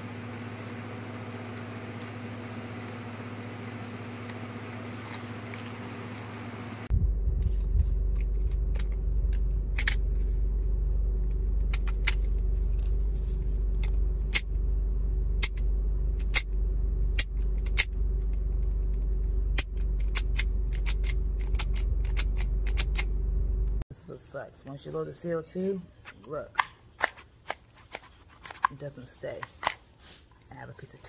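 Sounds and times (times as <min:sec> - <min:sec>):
idling car rumble: 0:06.9 - 0:23.8.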